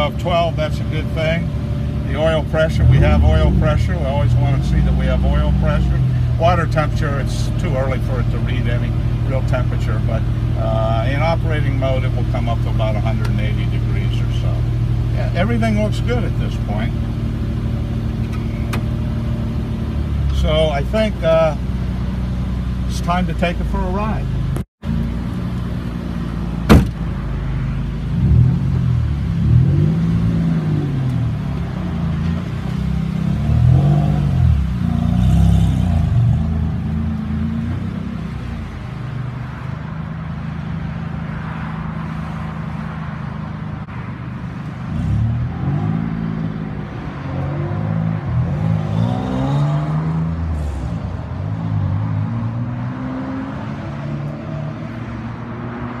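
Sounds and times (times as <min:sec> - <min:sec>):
vehicle engine revving: 0:00.0 - 0:44.0, 0:44.8 - 0:56.0
sharp knock: 0:26.7 - 0:27.0.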